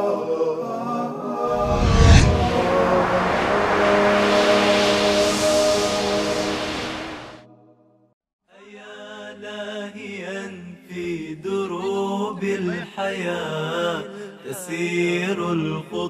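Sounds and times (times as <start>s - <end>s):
voices chanting unaccompanied: 11.6s - 13.8s.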